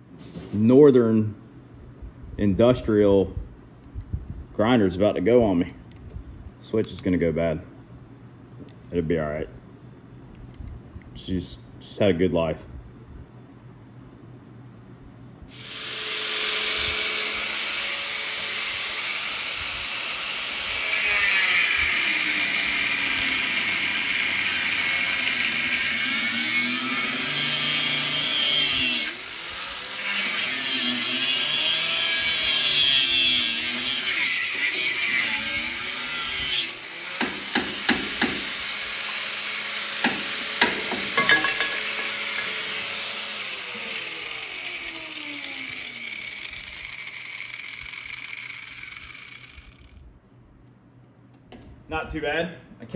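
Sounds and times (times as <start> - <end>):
angle grinder cutting steel: 15.5 - 50.0.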